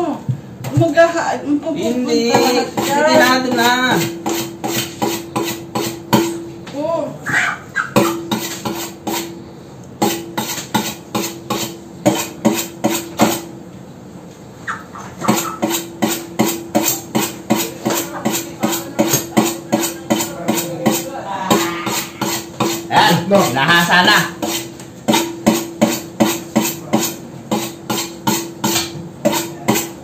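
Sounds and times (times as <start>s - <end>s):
knife sharpening strokes: 4.0s - 6.0s, 8.0s - 9.3s, 15.3s - 22.9s, 24.4s - 30.0s.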